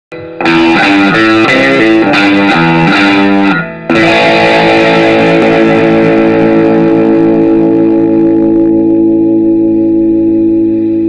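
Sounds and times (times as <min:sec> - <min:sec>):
electric guitar riff: 0:00.1 - 0:11.0.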